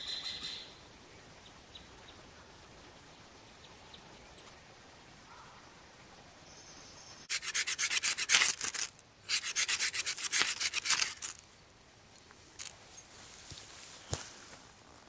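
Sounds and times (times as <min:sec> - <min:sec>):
knife scraping a stick: 0:07.3 - 0:11.4.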